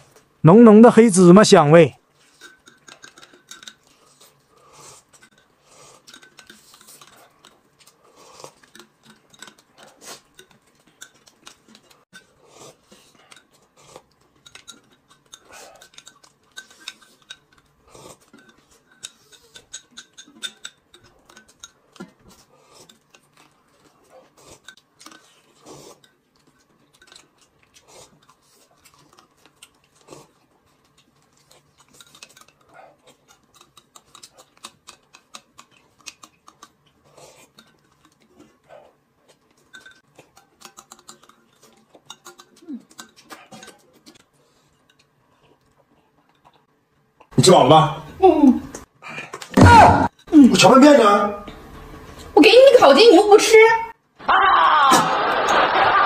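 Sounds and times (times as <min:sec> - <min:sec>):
quiet chewing: 0:02.0 - 0:47.4, 0:48.7 - 0:50.3
spoon scraping ceramic cup: 0:02.1 - 0:27.2.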